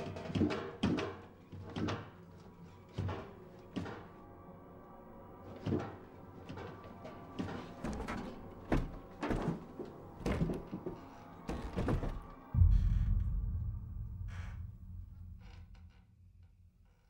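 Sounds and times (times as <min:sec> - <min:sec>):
knocks and creaks of rummaging: 0:05.5 - 0:13.0.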